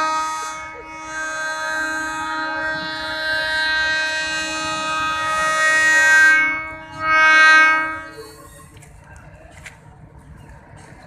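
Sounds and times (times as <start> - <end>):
locomotive horn blast: 0.0 - 8.5.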